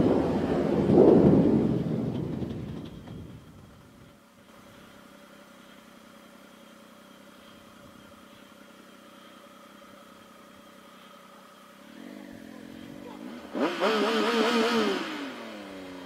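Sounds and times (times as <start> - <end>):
rushing noise: 0.0 - 3.8
motorcycle running at low speed: 0.0 - 16.0.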